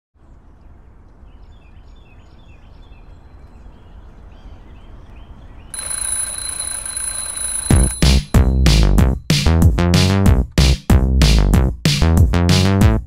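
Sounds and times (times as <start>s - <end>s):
birds chirping: 0.2s - 7.3s
alarm clock ringing: 5.8s - 8.8s.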